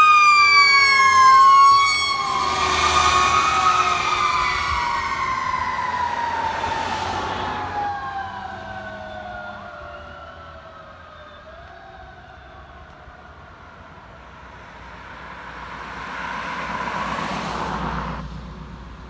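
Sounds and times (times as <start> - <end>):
fire engine siren wailing: 0.0 - 14.3.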